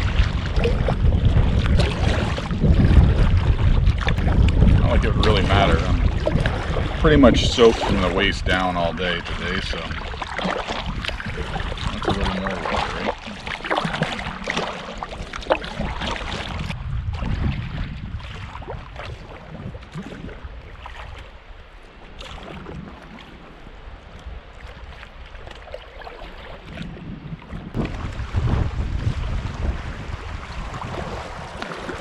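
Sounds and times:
water splashing and lapping: 0:00.0 - 0:32.0
wind buffeting the microphone: 0:00.0 - 0:32.0.

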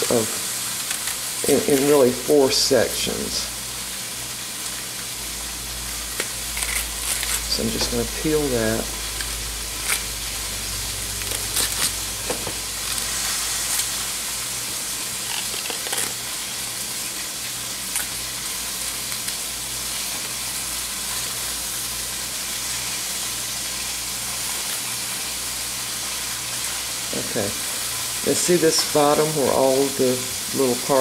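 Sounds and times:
onion skin crackling: 0:00.0 - 0:02.3, 0:06.1 - 0:21.4
meat sizzling in a pan: 0:00.0 - 0:31.0.

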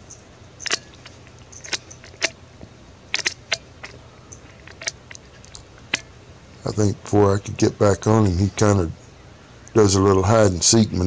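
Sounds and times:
prairie dog barking: 0:00.0 - 0:02.4, 0:03.1 - 0:06.2.

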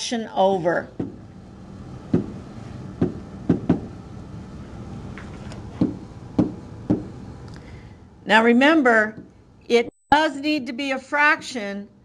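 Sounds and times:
steady low hum: 0:00.0 - 0:12.0
pen tapping on whiteboard: 0:05.8 - 0:07.1.

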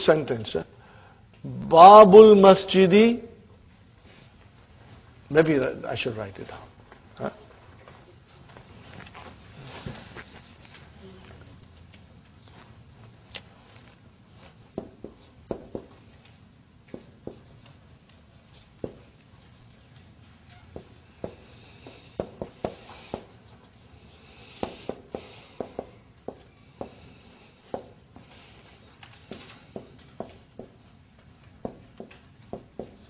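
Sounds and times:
marker tapping on whiteboard: 0:14.8 - 0:16.0, 0:16.9 - 0:17.8, 0:18.8 - 0:19.1, 0:20.8 - 0:23.4, 0:24.5 - 0:28.3, 0:29.2 - 0:30.8, 0:31.4 - 0:33.0
marker scratching on whiteboard: 0:16.9 - 0:19.2, 0:20.5 - 0:33.0.

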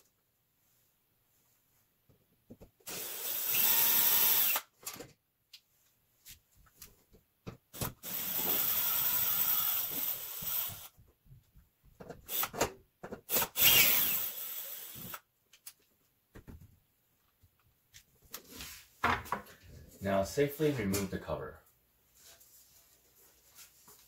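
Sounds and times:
cordless drill spinning screws: 0:02.9 - 0:04.7, 0:08.0 - 0:10.9, 0:13.3 - 0:15.2.

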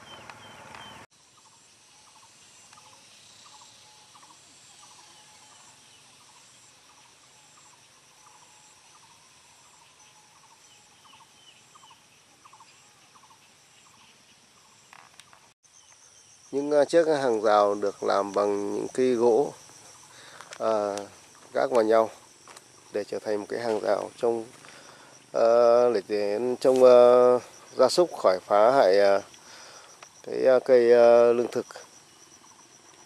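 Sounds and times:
short chirping calls: 0:00.0 - 0:14.9
insects trilling: 0:00.0 - 0:33.0.

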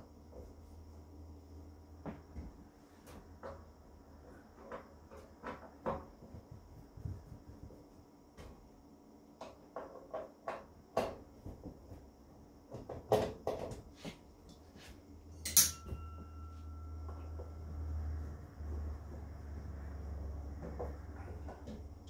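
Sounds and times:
sharp metallic clank with ringing: 0:15.4 - 0:17.2.

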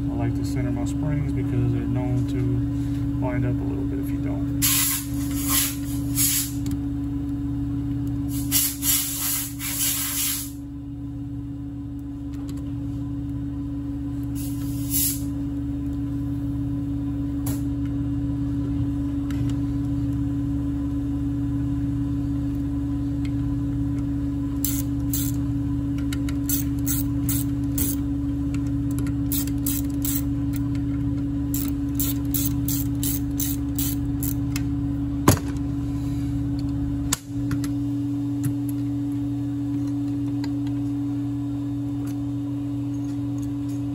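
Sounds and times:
steady low hum: 0:00.0 - 0:43.9
ratchet wrench clicking: 0:24.6 - 0:25.4, 0:26.4 - 0:28.0, 0:29.3 - 0:30.3, 0:31.5 - 0:34.4.

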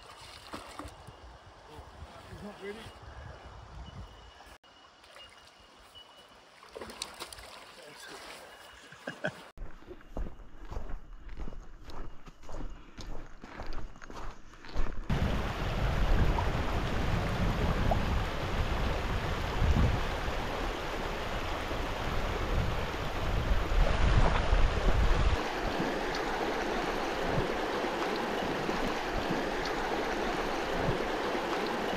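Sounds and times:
river water running over stones: 0:04.9 - 0:08.6, 0:15.1 - 0:31.9
wind buffeting microphone: 0:15.1 - 0:31.9.

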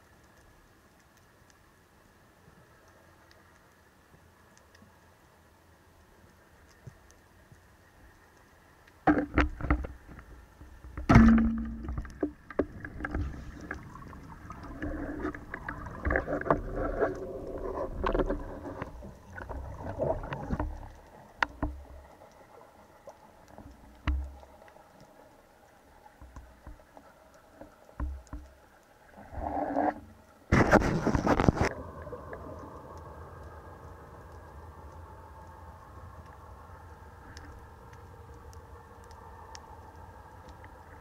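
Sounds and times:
underwater rustling and scraping: 0:06.1 - 0:41.0
speargun crack underwater: 0:10.9 - 0:13.8.

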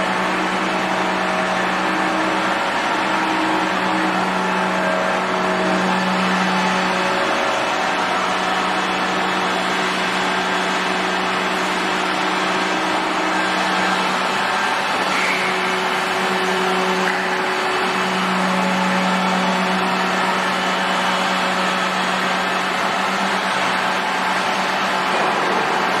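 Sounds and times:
drilling machine humming: 0:00.0 - 0:26.0.

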